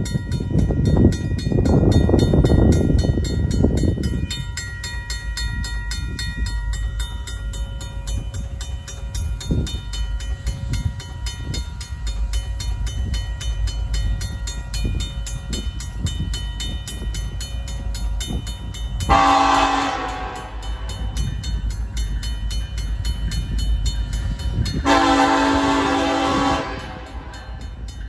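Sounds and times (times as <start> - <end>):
crossing bell ringing: 0.0 - 28.0
locomotive horn blast: 19.1 - 20.6, 24.8 - 27.4.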